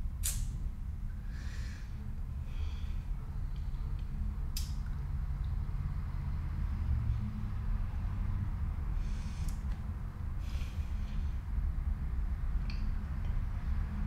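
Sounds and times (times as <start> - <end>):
low room hum: 0.0 - 14.0
person breathing: 1.1 - 3.5, 8.9 - 9.7, 10.4 - 11.7.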